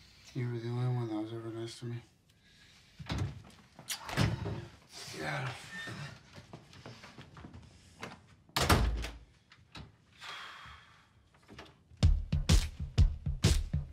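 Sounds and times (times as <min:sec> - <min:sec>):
wooden door slamming: 0:08.6 - 0:09.2
drum beat: 0:12.0 - 0:13.9.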